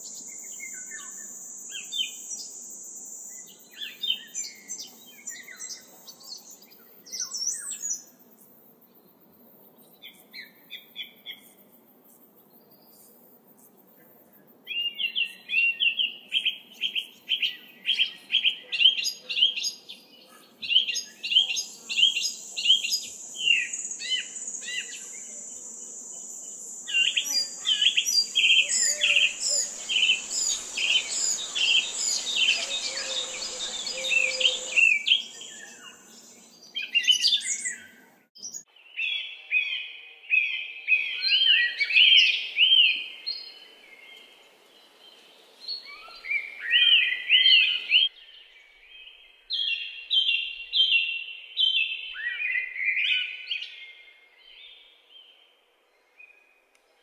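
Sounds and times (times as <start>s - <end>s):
songbirds chirping: 0.0s - 57.0s
soft hiss: 21.9s - 36.5s.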